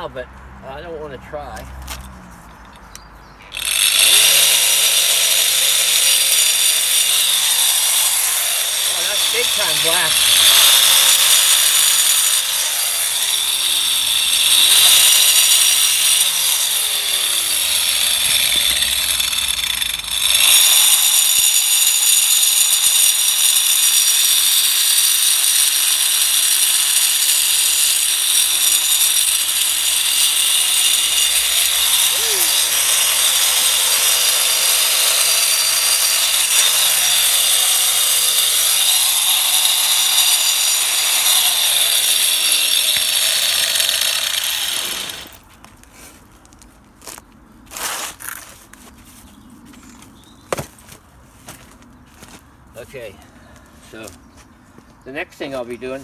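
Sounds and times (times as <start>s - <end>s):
angle grinder cutting stone: 3.5s - 45.4s.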